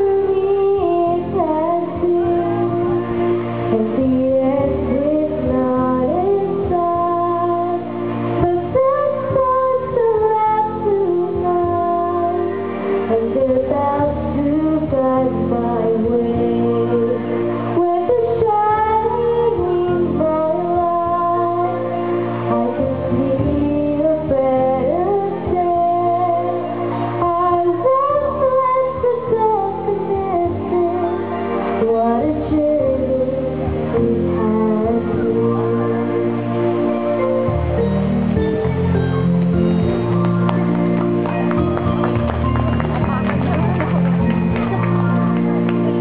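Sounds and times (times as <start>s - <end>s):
girl singing into a microphone: 0.0s - 36.6s
instrumental accompaniment: 0.0s - 46.0s.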